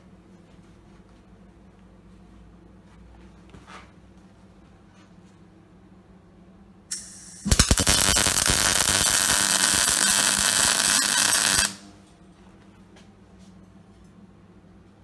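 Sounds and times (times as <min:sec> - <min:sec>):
welder arc crackling: 0:06.9 - 0:11.9.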